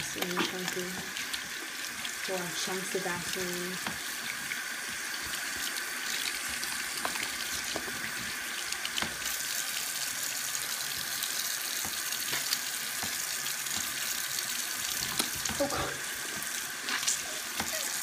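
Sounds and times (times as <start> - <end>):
tap water running into sink: 0.0 - 18.0.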